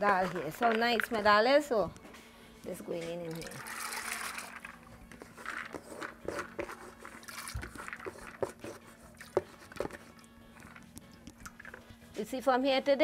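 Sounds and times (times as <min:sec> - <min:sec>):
peas splashing into water: 0:03.3 - 0:04.8.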